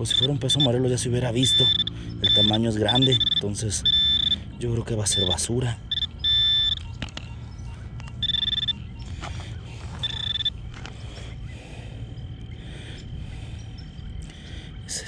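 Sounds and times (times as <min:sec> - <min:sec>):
metal detector beeps: 0:00.0 - 0:10.6.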